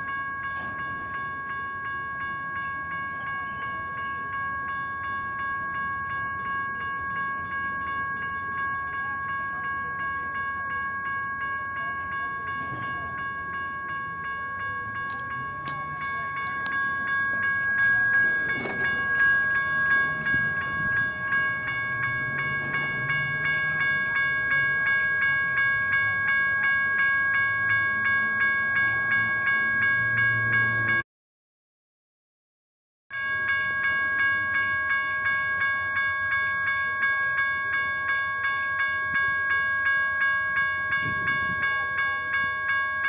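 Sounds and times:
railroad crossing bells ringing: 0:00.0 - 0:31.0, 0:33.1 - 0:43.0
freight cars rumbling past: 0:11.7 - 0:26.2.

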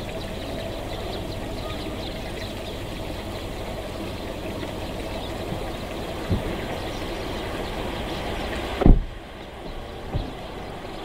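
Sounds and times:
low background rumble: 0:00.0 - 0:11.0
sparrows chirping: 0:00.0 - 0:11.0
dull thump: 0:06.2 - 0:06.6, 0:08.8 - 0:09.1, 0:10.1 - 0:10.4.

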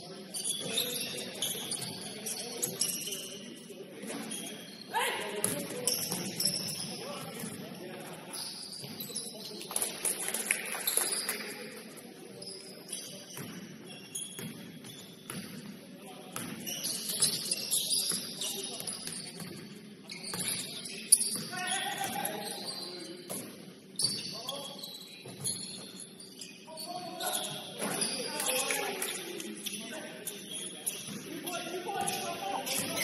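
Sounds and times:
players' voices: 0:00.0 - 0:14.1, 0:15.7 - 0:25.4, 0:26.4 - 0:33.0
sneakers squeaking: 0:00.0 - 0:33.0
basketball bouncing: 0:14.4 - 0:15.5.

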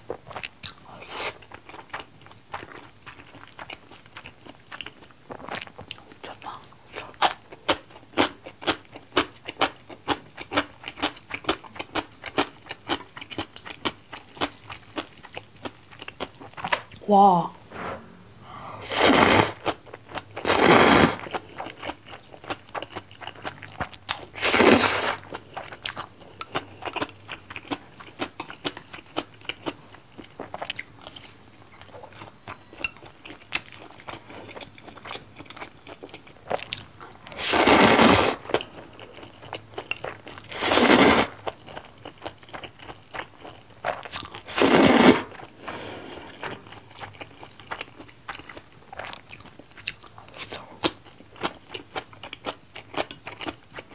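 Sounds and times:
wet chewing with crunches: 0:00.1 - 0:17.0, 0:19.6 - 0:45.6, 0:46.3 - 0:53.9
slurping noodles: 0:18.7 - 0:19.8, 0:20.4 - 0:21.3, 0:24.4 - 0:25.2, 0:37.4 - 0:38.5, 0:40.5 - 0:41.4, 0:44.5 - 0:46.4.

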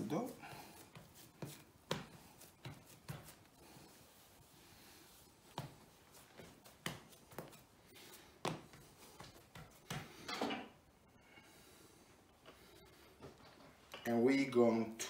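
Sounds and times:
hand patting dough on benchtop: 0:00.7 - 0:03.6, 0:05.1 - 0:07.6, 0:08.2 - 0:10.3.

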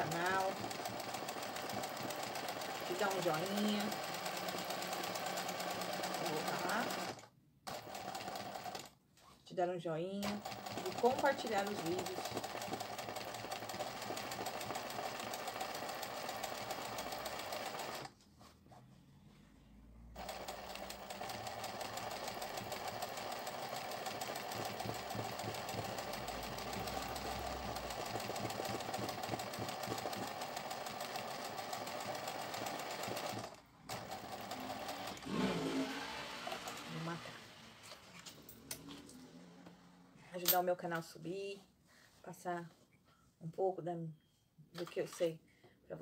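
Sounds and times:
sewing machine running: 0:00.0 - 0:08.9, 0:10.2 - 0:18.1, 0:20.2 - 0:37.2.

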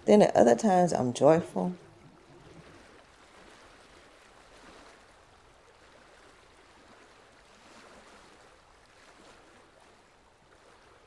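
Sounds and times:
faint ocean waves washing: 0:00.0 - 0:11.0.

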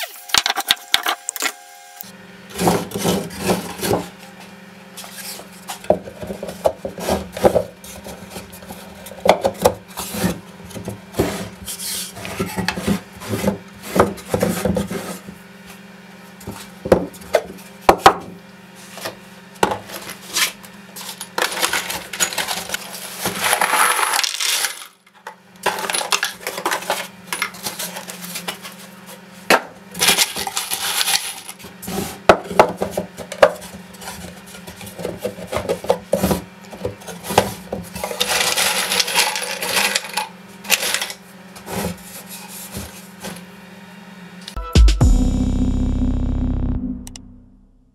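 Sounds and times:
screws rattling in bin: 0:21.3 - 0:25.0, 0:30.0 - 0:31.6, 0:38.1 - 0:41.2.

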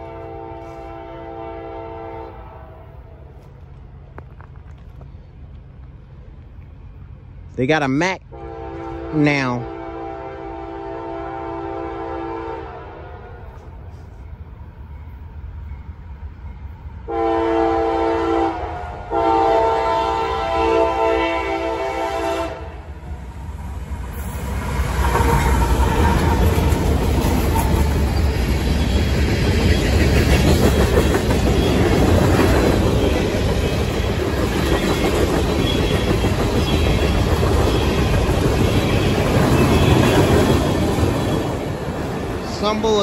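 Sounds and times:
locomotive horn blasts: 0:00.0 - 0:02.8, 0:08.3 - 0:13.0, 0:17.1 - 0:22.8
train wheels rumbling on rails: 0:18.6 - 0:43.0.

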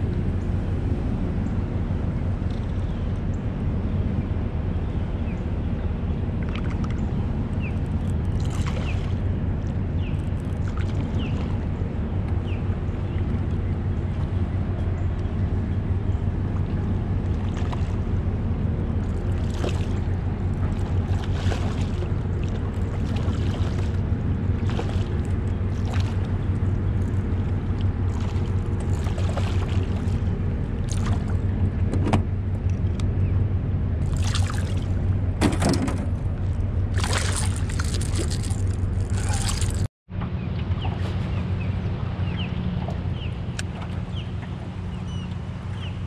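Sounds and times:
low steady rumble: 0:00.0 - 0:46.0
fish thrashing and splashing: 0:19.1 - 0:24.0, 0:28.0 - 0:31.4, 0:34.0 - 0:35.0, 0:35.6 - 0:39.9.

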